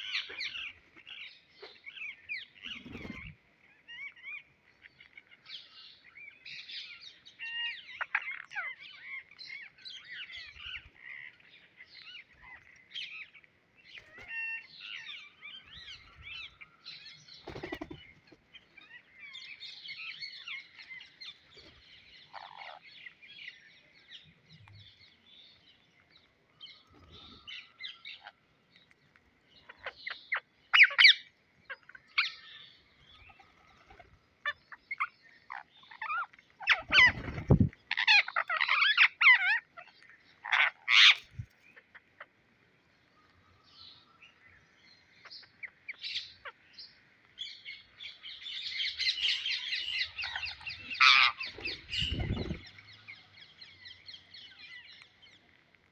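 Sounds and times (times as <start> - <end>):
parakeets chirping and squawking: 7.5 - 13.4, 14.0 - 23.2, 29.5 - 42.3, 47.8 - 55.4.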